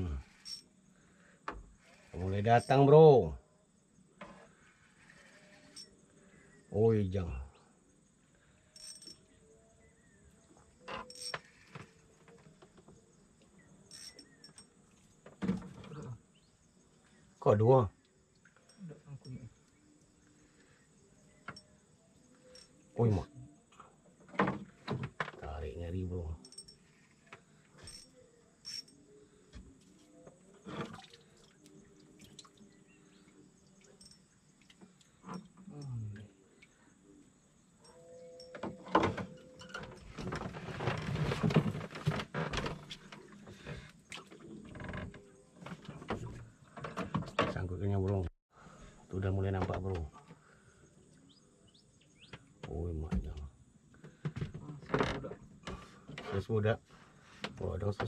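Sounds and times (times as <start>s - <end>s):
insects chirring: 0.0s - 48.0s.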